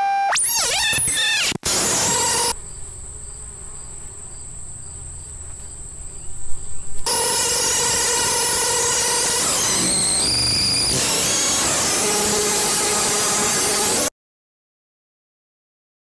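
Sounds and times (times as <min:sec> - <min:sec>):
harsh electronic drone: 0:00.0 - 0:02.6, 0:07.1 - 0:14.1
high insect buzz: 0:00.3 - 0:13.3.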